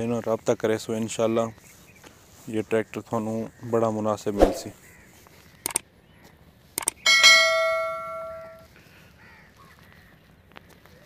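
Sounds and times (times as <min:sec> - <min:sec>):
mouse clicks: 0:05.6 - 0:05.8, 0:06.8 - 0:07.0
bright bell ding: 0:07.1 - 0:08.6.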